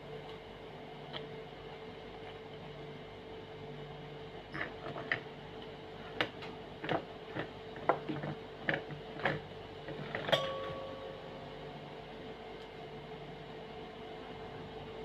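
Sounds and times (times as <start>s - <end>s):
metallic clink ringing: 10.3s - 11.2s.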